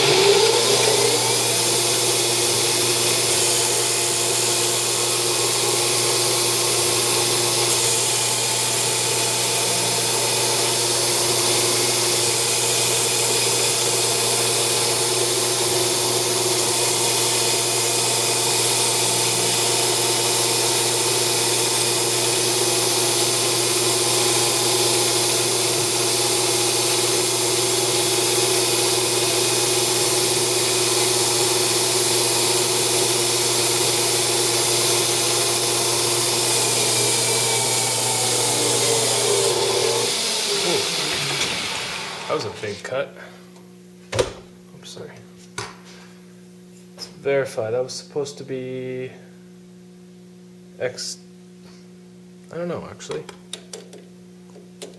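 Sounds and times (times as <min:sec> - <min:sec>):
lathe motor whine: 0:00.0 - 0:42.9
turning tool cutting metal: 0:00.0 - 0:42.9.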